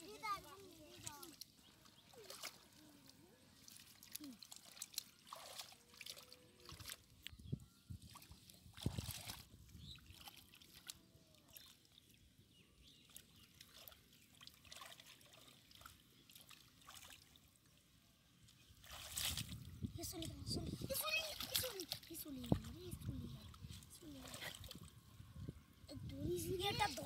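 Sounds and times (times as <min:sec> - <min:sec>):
water splashing: 0:00.0 - 0:07.2, 0:13.0 - 0:17.5, 0:18.7 - 0:20.3, 0:20.9 - 0:24.9
hands sloshing in muddy water: 0:00.4 - 0:07.4, 0:08.0 - 0:12.3, 0:13.0 - 0:17.6, 0:18.4 - 0:25.0.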